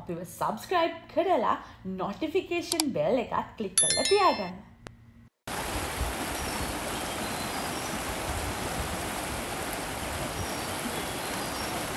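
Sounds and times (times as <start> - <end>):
water rushing over stones: 5.5 - 11.9.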